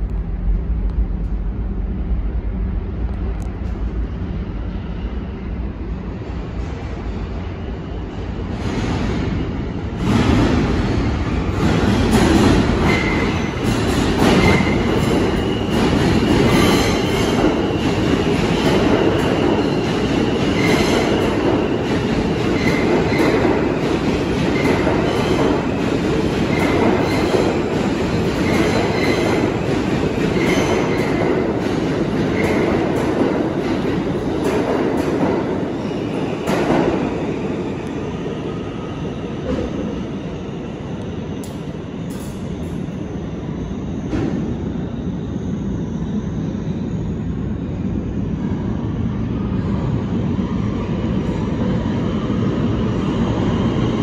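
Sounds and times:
subway train rumbling on rails: 0.0s - 54.0s.

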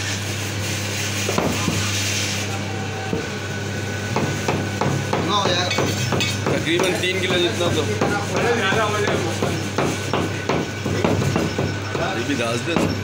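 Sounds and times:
cleaver chopping meat and bone: 4.1s - 13.0s.

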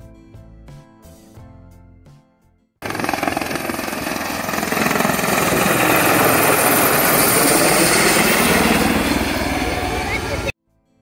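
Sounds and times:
helicopter rotor chopping: 2.8s - 10.6s.

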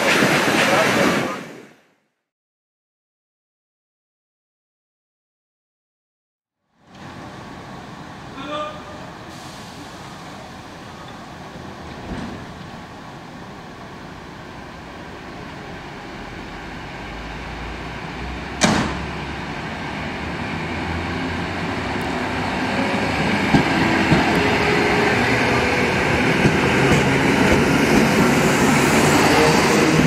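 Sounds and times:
electric train pulling away: 6.9s - 30.0s.

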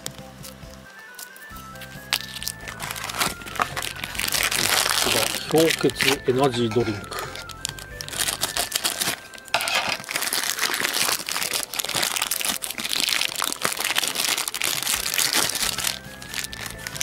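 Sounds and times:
plastic bag crinkling: 0.0s - 17.0s
scissors snipping plastic: 0.0s - 17.0s.

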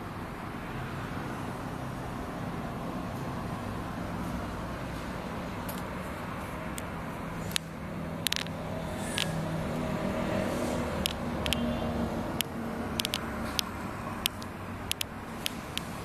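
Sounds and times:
vehicle engine humming: 0.0s - 16.0s
sharp clicks and taps: 7.5s - 8.6s, 11.0s - 11.6s, 12.4s - 16.0s.

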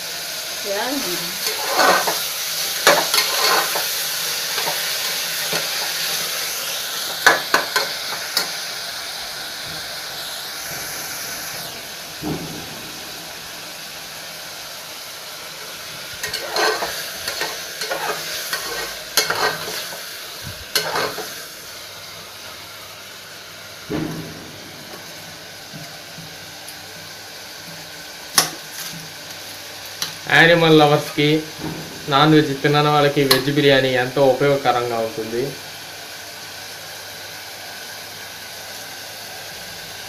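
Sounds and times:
vegetables sizzling in hot oil: 0.0s - 40.0s
ladle scraping and knocking pot: 16.2s - 19.9s, 20.7s - 21.2s.

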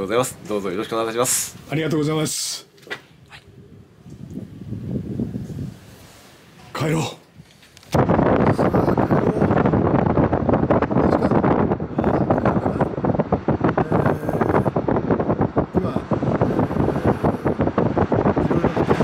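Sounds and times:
road noise: 0.0s - 8.5s, 10.7s - 19.0s
wind buffeting microphone: 3.1s - 6.2s, 6.9s - 19.0s.

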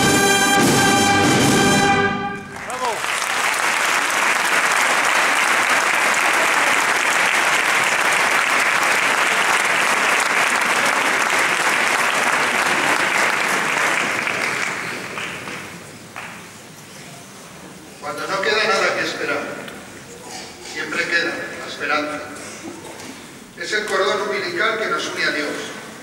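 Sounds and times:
audience applauding: 2.4s - 16.6s.

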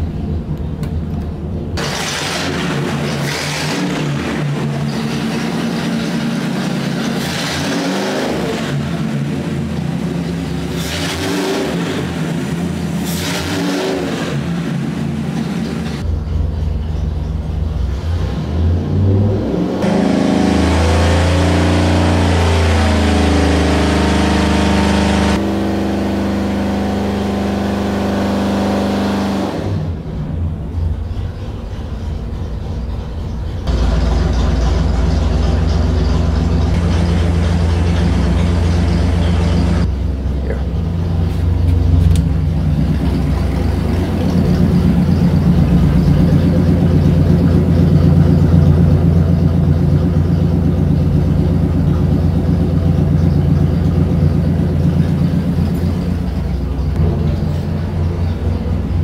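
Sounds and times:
engine running on dynamometer: 17.6s - 59.0s.

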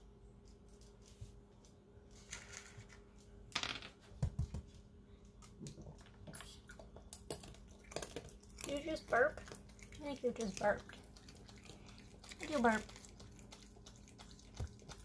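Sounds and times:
raccoon crunching nuts: 5.3s - 15.0s.

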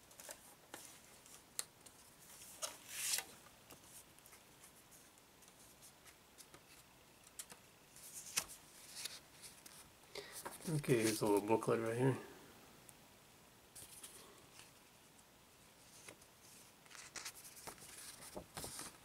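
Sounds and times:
paper rustling: 0.0s - 11.6s, 15.8s - 19.0s.

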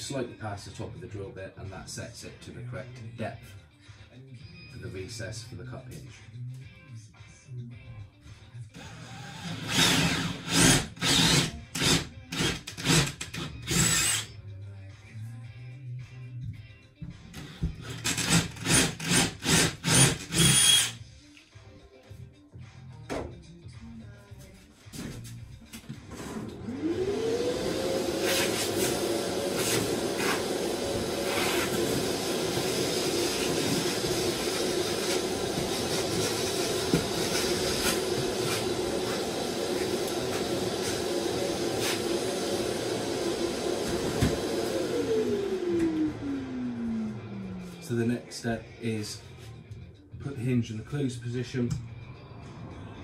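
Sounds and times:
cordless drill boring into wood: 8.8s - 14.3s, 17.9s - 21.0s
shop vacuum motor whine: 26.4s - 48.0s.

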